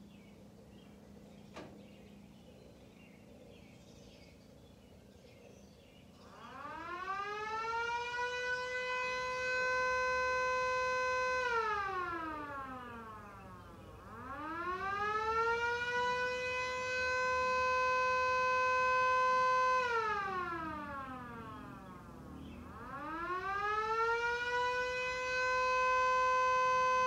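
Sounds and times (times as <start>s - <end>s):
siren wailing: 6.2s - 27.0s.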